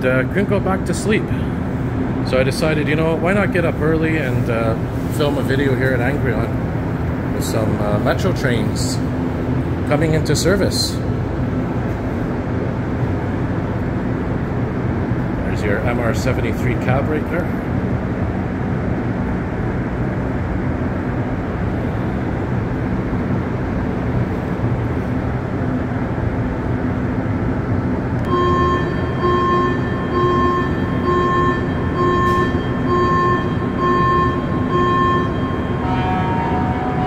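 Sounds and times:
train equipment humming: 0.0s - 37.0s
electronic beep: 28.3s - 37.0s.

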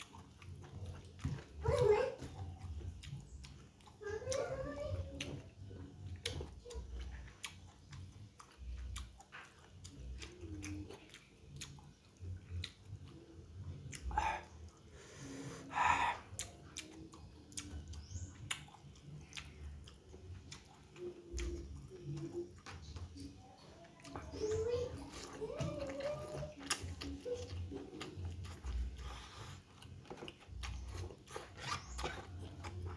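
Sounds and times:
chewing noodles: 0.0s - 32.9s
wet mouth clicks and lip smacks: 16.2s - 21.6s.

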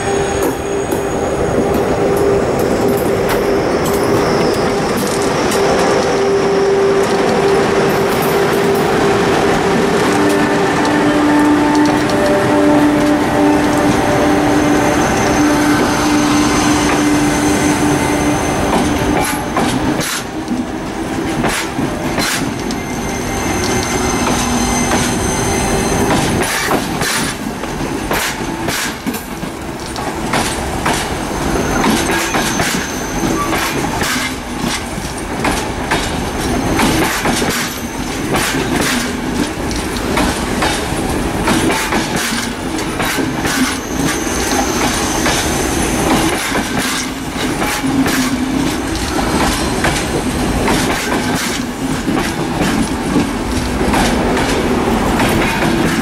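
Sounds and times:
train wheels rumbling on rail: 0.0s - 56.0s
clacks over rail joints: 18.7s - 22.8s, 26.1s - 31.2s, 31.8s - 45.4s, 46.1s - 56.0s.

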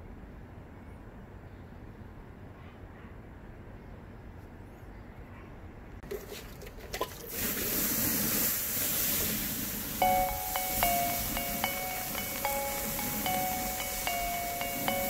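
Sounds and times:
water hissing on hot char: 7.1s - 15.0s.

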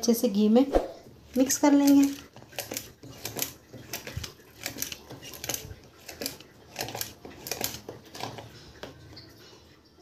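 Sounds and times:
metal whisk scraping a bowl: 1.0s - 9.3s.

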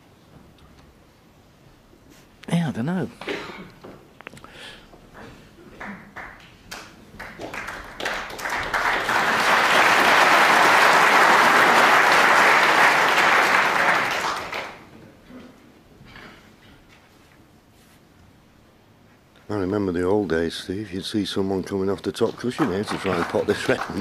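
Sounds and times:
audience applauding: 5.7s - 14.9s, 22.4s - 24.0s.

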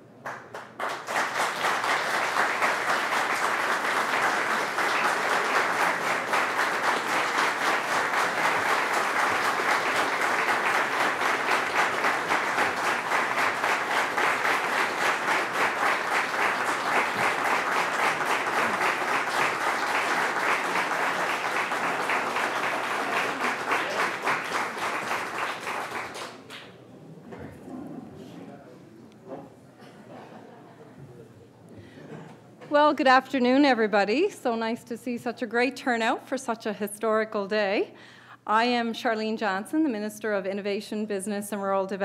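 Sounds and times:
audience applauding: 0.2s - 26.8s.

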